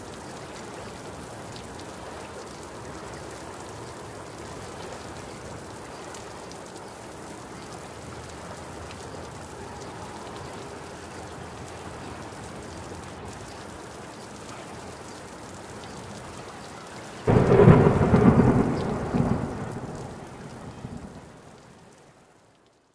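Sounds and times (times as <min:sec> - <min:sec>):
steady rain: 0:00.0 - 0:22.9
rumble of thunder: 0:17.3 - 0:21.3.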